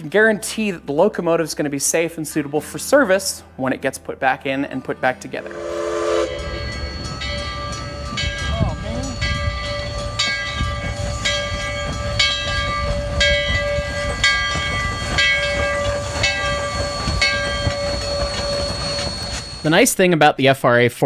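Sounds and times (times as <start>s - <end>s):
steam locomotive rumbling: 5.2s - 20.1s
bell ringing: 5.2s - 20.2s.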